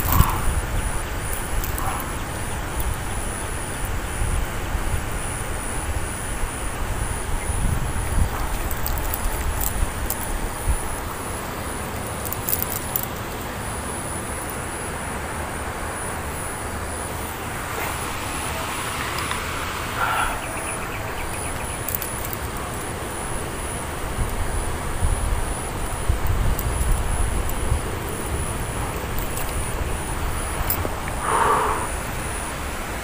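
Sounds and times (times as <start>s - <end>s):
distant road traffic hum: 0.0s - 33.0s
fishing reel clicks: 1.3s - 2.0s, 8.6s - 10.5s, 12.2s - 13.4s.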